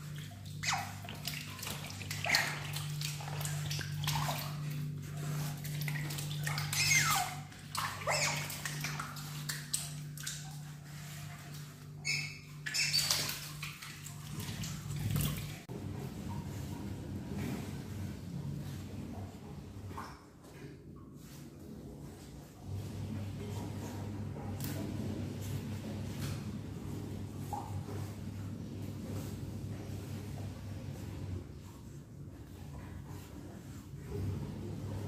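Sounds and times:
scampering on wet floor: 0:00.0 - 0:15.6
steady low hum: 0:00.0 - 0:35.0.

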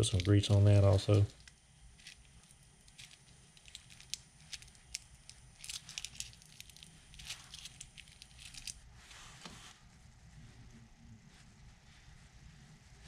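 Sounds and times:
plastic packet crinkling: 0:00.0 - 0:08.8.

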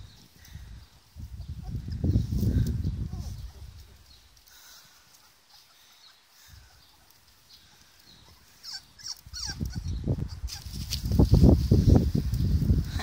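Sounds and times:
puppies whimpering and squeaking: 0:08.1 - 0:10.7.

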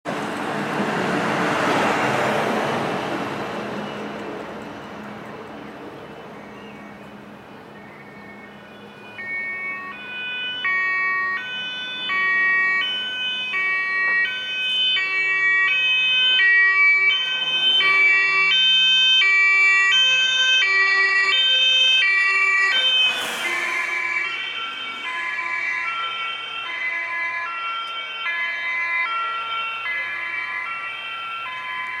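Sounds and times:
road noise of passing vehicle: 0:00.1 - 0:32.0
two-tone siren: 0:07.8 - 0:32.0.

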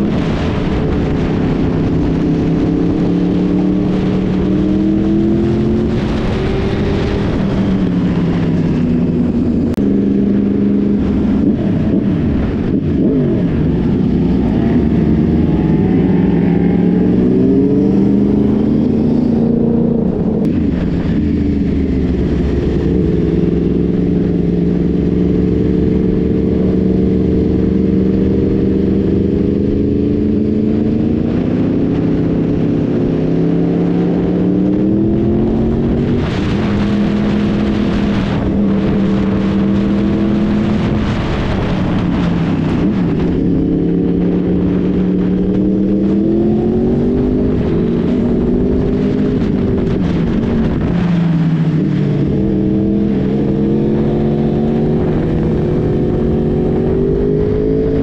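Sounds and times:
motorcycle engine accelerating: 0:00.0 - 0:58.0.

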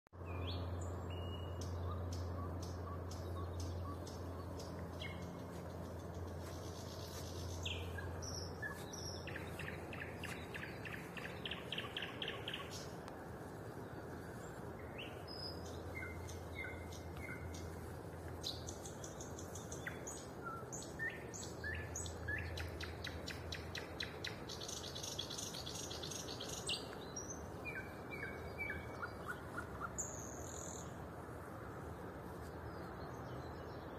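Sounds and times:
low steady hum: 0:00.2 - 0:33.9
songbird singing: 0:00.2 - 0:33.9.

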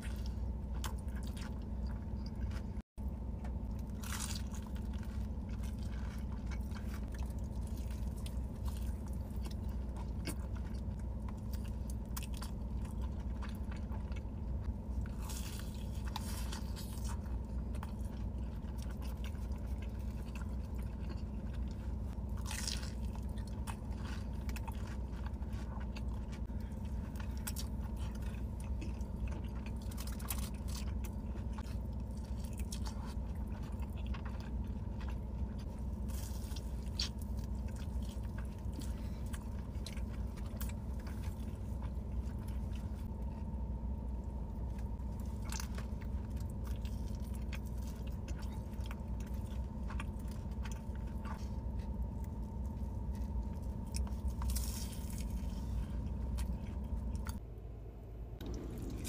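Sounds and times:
person chewing food: 0:00.0 - 0:57.4
steady low hum: 0:00.0 - 0:59.0
crisp crunches: 0:44.6 - 0:57.4.

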